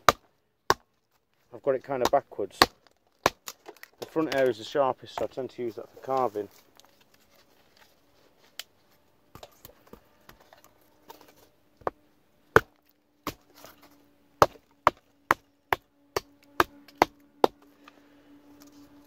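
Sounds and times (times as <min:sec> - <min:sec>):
knife chopping wood: 0:00.0 - 0:00.9, 0:02.0 - 0:04.4, 0:11.1 - 0:13.8, 0:14.4 - 0:17.7.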